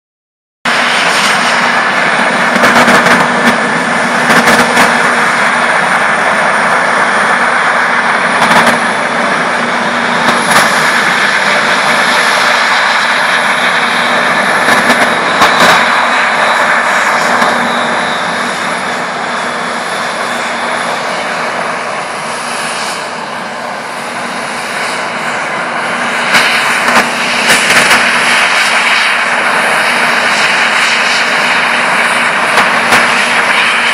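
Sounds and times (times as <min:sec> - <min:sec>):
combine harvester drone: 0:00.7 - 0:33.9.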